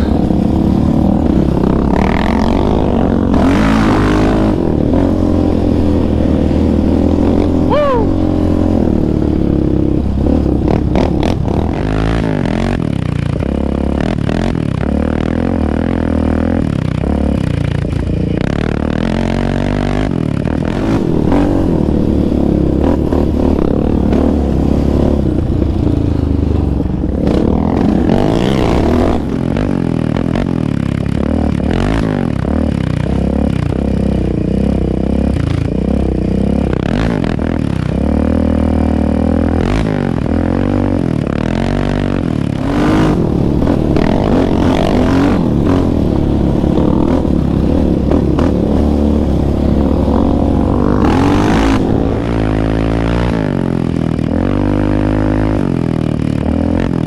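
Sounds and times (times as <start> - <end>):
quad engine revving: 0.0 - 57.0.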